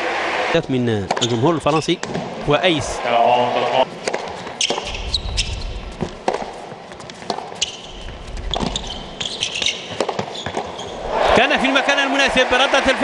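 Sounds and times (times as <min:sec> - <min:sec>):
crowd in arena: 0:00.0 - 0:01.8, 0:10.7 - 0:13.0
tennis ball bouncing on court: 0:01.1 - 0:01.3, 0:04.0 - 0:11.0
tennis ball struck by racket: 0:04.0 - 0:07.8, 0:08.5 - 0:10.8
shoe squeaks: 0:04.6 - 0:06.2, 0:06.8 - 0:11.0.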